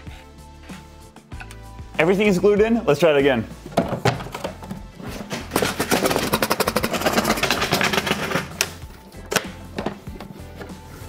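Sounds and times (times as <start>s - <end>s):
background music: 0.0s - 11.0s
plastic bin rattling in wooden case: 3.6s - 8.6s.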